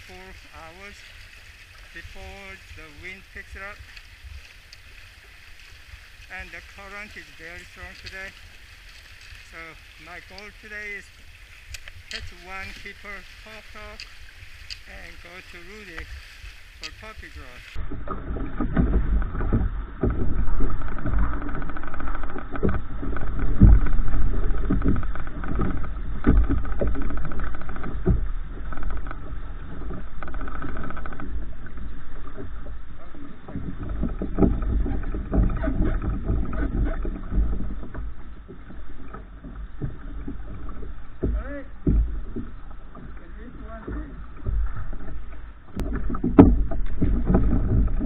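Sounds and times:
water slapping against kayak hull: 0.0s - 48.0s
knocks and clicks: 11.7s - 16.1s, 16.8s - 24.0s, 33.5s - 48.0s.

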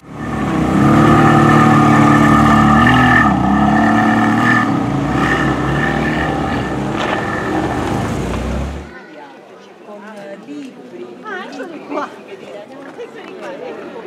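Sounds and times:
car engine driving past: 0.0s - 9.0s.

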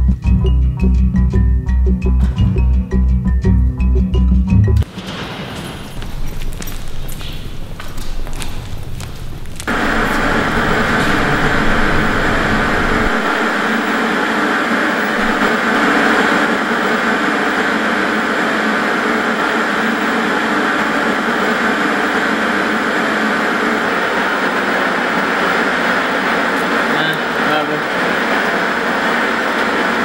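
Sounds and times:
loud steady rushing noise: 4.8s - 30.0s
deep rumble: 5.8s - 14.0s, 15.1s - 15.6s.

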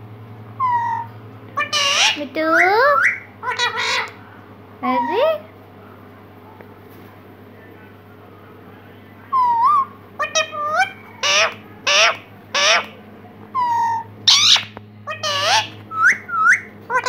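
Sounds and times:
parrot calling: 0.6s - 4.2s, 4.8s - 5.5s, 9.3s - 17.0s.

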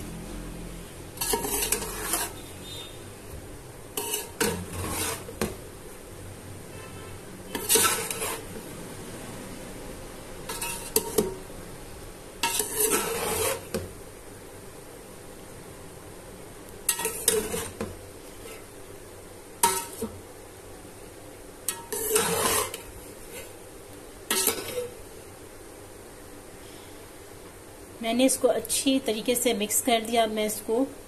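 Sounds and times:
metal spoon scraping a pot: 1.1s - 2.9s, 4.0s - 5.5s, 7.5s - 8.6s, 10.5s - 11.3s, 12.4s - 13.8s, 16.9s - 18.7s, 19.6s - 20.1s, 21.7s - 23.5s, 24.3s - 25.0s.

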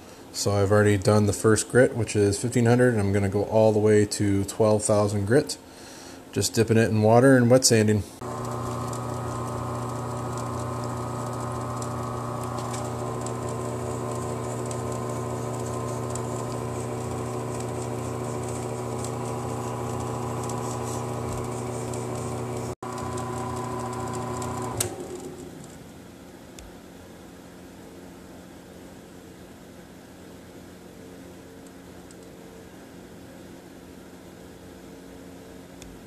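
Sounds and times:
wood lathe motor humming: 8.2s - 25.7s.

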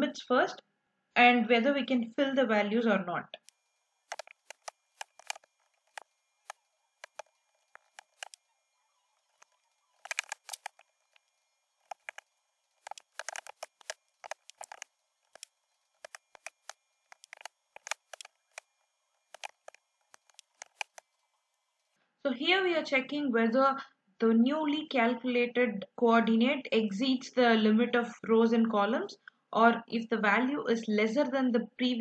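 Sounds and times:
computer keyboard typing: 4.1s - 8.4s, 9.2s - 11.2s, 11.8s - 18.7s, 19.3s - 21.0s.

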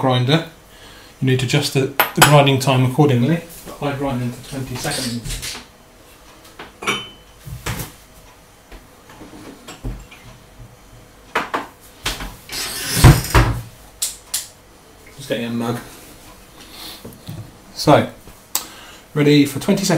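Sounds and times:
cupboard door opening and shutting: 12.2s - 13.7s.

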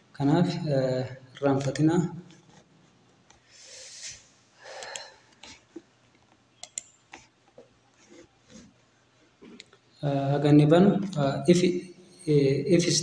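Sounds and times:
faint breathing: 3.4s - 5.6s
computer mouse clicks: 4.7s - 7.7s.

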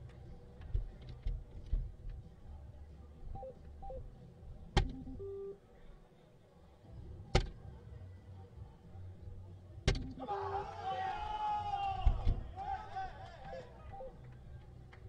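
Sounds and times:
short electronic beeps: 3.4s - 4.1s, 4.9s - 5.6s, 13.9s - 14.2s.

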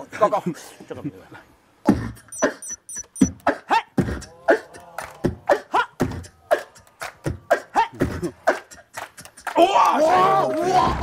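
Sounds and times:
beatboxing into microphone: 1.9s - 9.6s.

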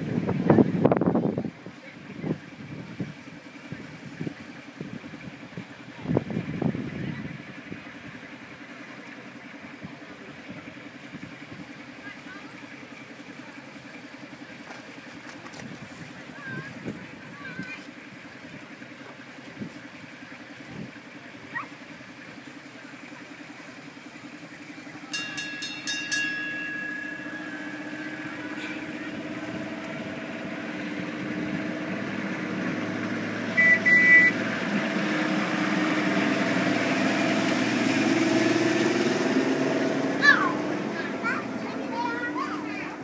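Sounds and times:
vehicle engine approaching: 0.0s - 43.0s
short beeps: 33.5s - 34.4s
double horn beep: 33.5s - 34.5s.

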